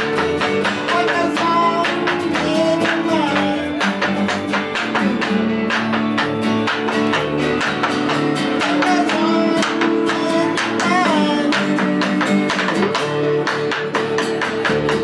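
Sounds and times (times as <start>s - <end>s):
man singing: 0.0s - 5.4s, 8.3s - 13.0s
rock band playing: 0.0s - 15.0s.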